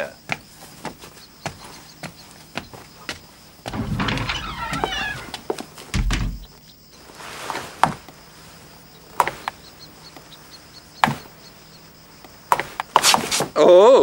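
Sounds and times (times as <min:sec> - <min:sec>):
heavy dull thump: 0:03.7 - 0:06.6
sharp knocks: 0:03.7 - 0:06.6.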